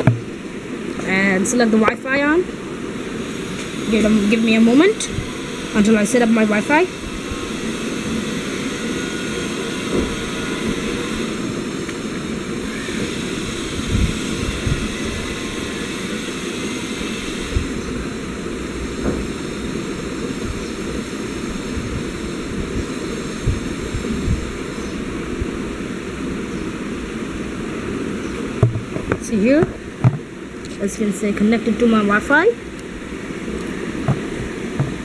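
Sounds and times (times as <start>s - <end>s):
soft low thumps: 0.0s - 0.4s, 28.6s - 30.3s, 34.0s - 35.0s
steady rushing noise: 0.0s - 35.0s.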